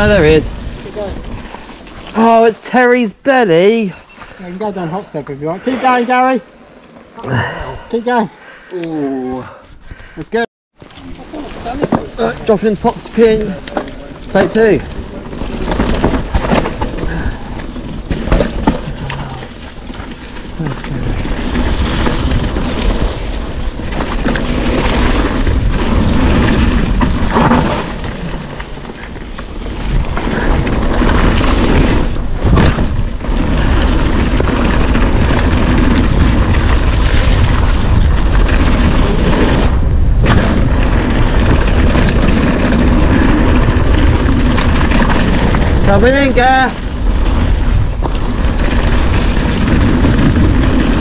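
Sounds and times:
bike tyres rumbling on dirt: 0:00.0 - 0:08.2, 0:10.8 - 0:51.0
wind buffeting microphone: 0:11.1 - 0:51.0.

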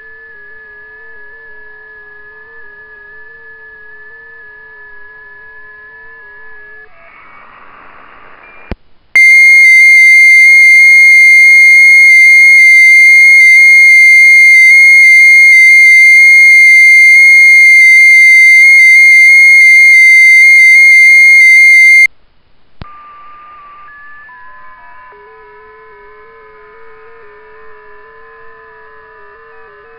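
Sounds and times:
loud radio data tone: 0:06.6 - 0:22.1.

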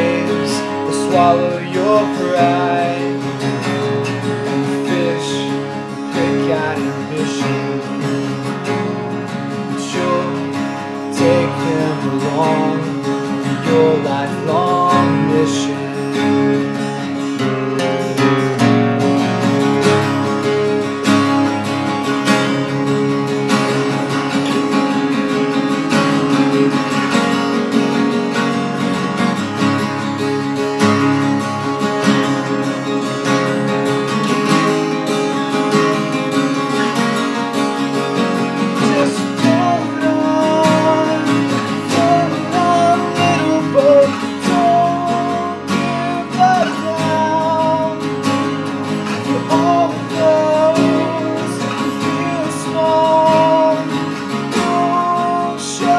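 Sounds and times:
acoustic guitars strummed and picked: 0:00.0 - 0:55.9.

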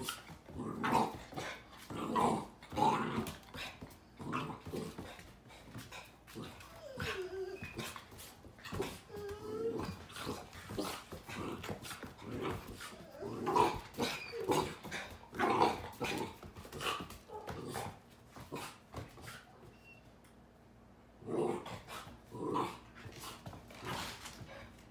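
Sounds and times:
puppy play vocalizations: 0:00.0 - 0:19.9.

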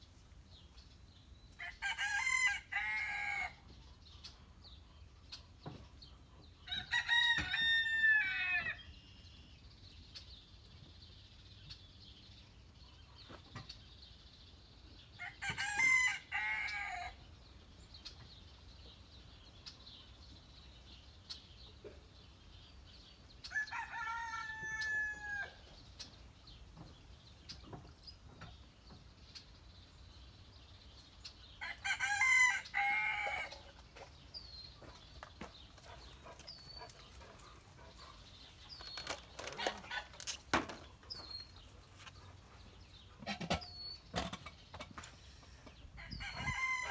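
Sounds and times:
rooster crowing: 0:46.0 - 0:46.9.

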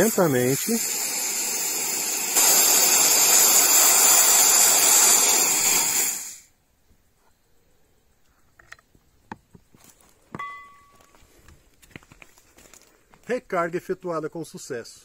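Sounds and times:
high-pressure air hissing: 0:00.0 - 0:06.5.

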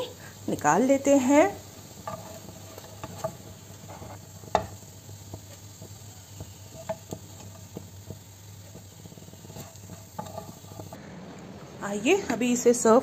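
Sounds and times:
cutlets sizzling in oil: 0:00.0 - 0:11.0
spatula scraping and tapping pan: 0:01.7 - 0:11.0.

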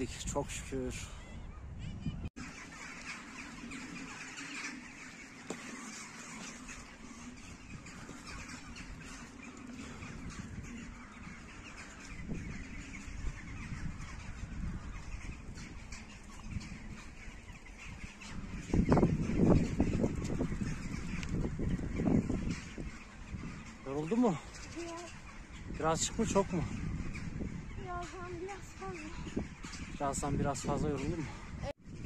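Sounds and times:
birds calling: 0:00.0 - 0:32.0.

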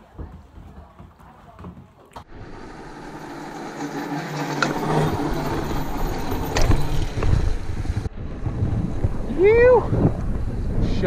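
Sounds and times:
rope tow machinery humming: 0:02.3 - 0:08.1.

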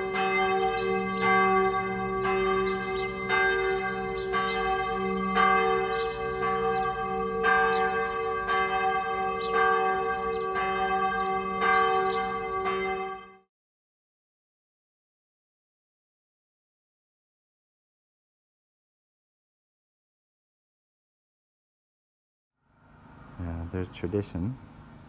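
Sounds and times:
church bell tolling: 0:00.0 - 0:13.5.

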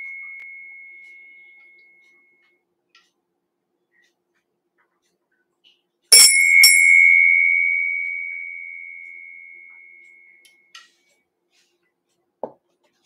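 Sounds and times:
brass hand bell ringing: 0:06.1 - 0:10.0.

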